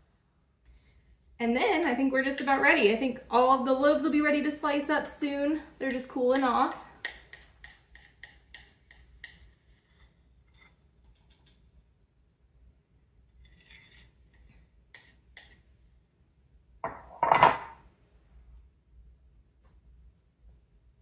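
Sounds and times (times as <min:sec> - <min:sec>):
utensil tapping a dish: 0:06.2 - 0:09.8
dishes clattering: 0:16.8 - 0:17.8.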